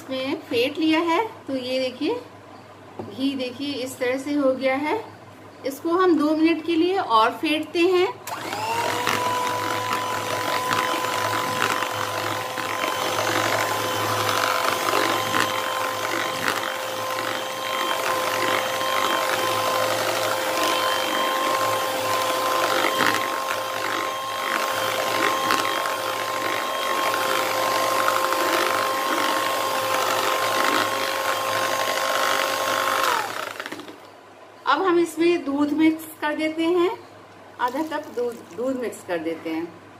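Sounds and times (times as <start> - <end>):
electric hand mixer whining: 8.3 - 34.0.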